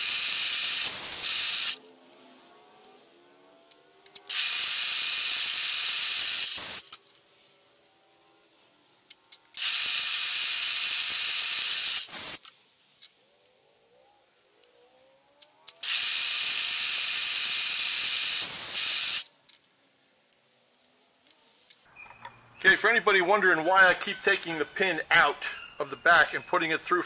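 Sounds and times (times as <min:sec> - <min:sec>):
compressed air blasts: 0:00.0 - 0:01.8, 0:04.3 - 0:06.9, 0:09.6 - 0:12.4, 0:15.8 - 0:19.3.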